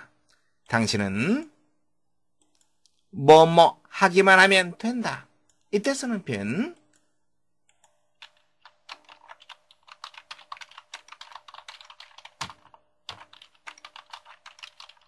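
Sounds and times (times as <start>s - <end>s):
typing on computer keyboard: 7.7s - 15.0s.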